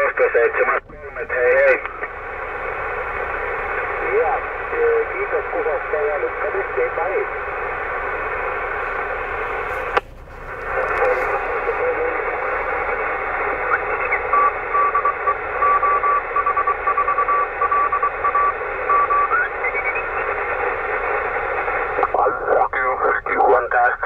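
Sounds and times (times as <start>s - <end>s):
radio receiver hiss: 0.0s - 24.0s
morse code tone: 13.7s - 20.2s.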